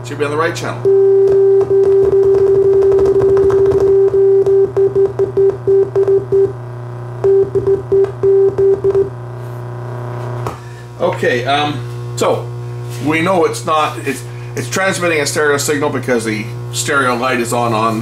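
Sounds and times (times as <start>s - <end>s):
steady electrical hum: 0.0s - 18.0s
steady test tone: 7.2s - 9.2s.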